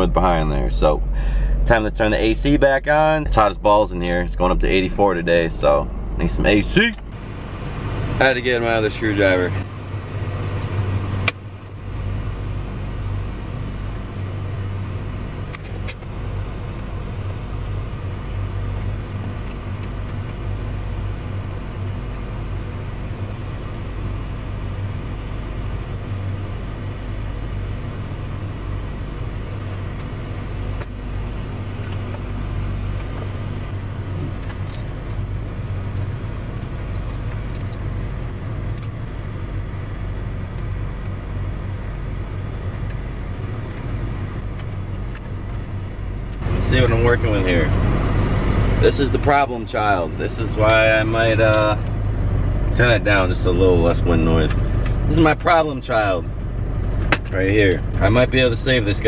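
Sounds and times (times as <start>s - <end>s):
air-conditioning blower rushing: 0.0s - 59.0s
car engine idling: 0.0s - 59.0s.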